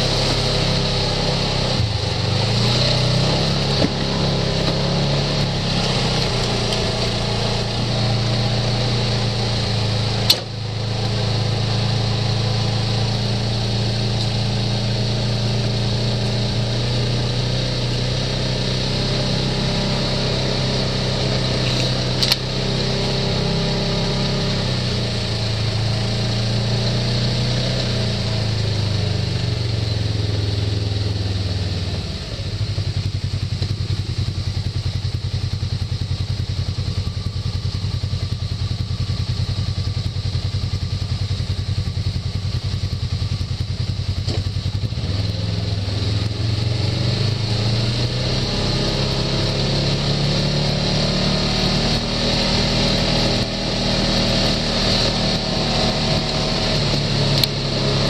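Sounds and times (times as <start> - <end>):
off-road vehicle engine running: 0.0 - 58.0.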